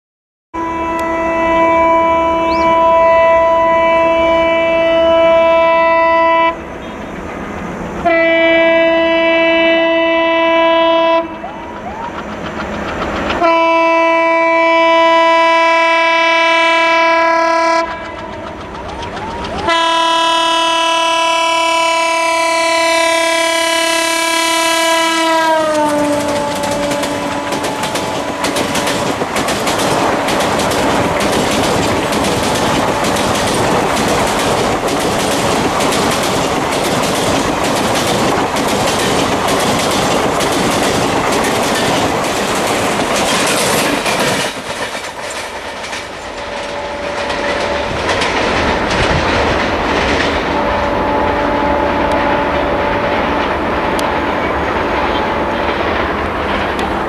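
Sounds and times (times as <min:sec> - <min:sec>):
locomotive horn blasts: 0:00.6 - 0:07.0, 0:08.0 - 0:11.7, 0:13.4 - 0:18.4, 0:19.5 - 0:28.6, 0:46.4 - 0:48.0, 0:50.4 - 0:53.6, 0:55.1 - 0:55.8
engine and track rumble: 0:00.6 - 0:57.0
coaches clattering over rail joints: 0:11.3 - 0:14.1, 0:17.7 - 0:20.2, 0:25.6 - 0:50.6, 0:52.8 - 0:57.0.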